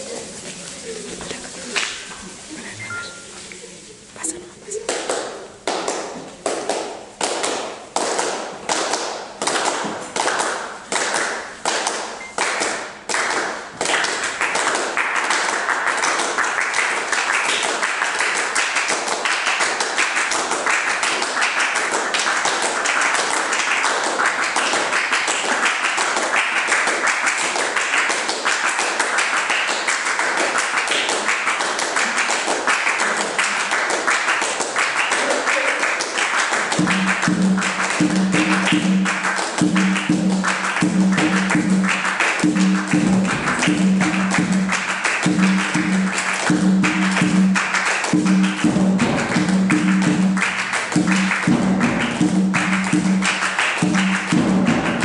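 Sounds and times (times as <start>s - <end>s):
group of people clapping: 0.0s - 2.5s, 4.2s - 55.0s.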